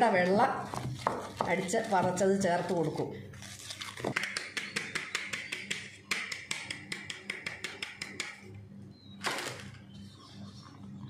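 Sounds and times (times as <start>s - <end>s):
whisk clicking against steel bowl: 4.2s - 8.4s.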